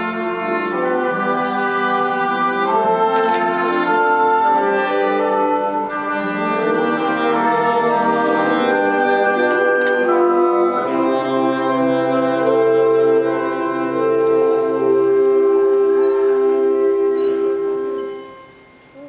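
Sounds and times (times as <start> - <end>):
wind band brass chords: 0.0 - 18.5
percussion strikes: 1.2 - 3.8, 17.2 - 19.0.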